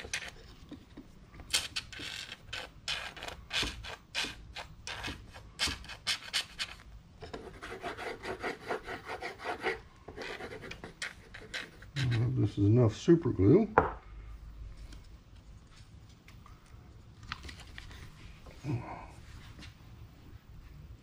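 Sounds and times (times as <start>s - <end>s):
scraping on masking tape: 0.0s - 0.7s, 1.5s - 12.4s.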